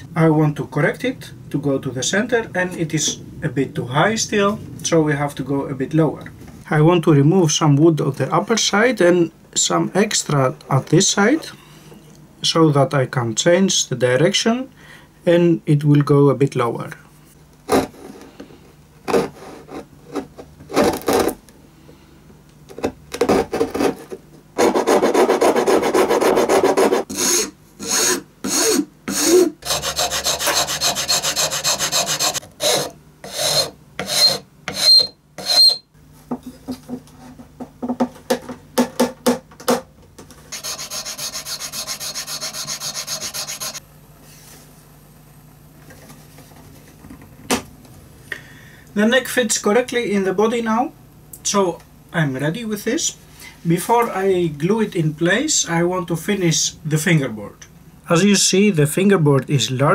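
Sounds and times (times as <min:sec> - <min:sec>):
file rasping on wood: 0:24.6 - 0:35.8, 0:40.5 - 0:43.8.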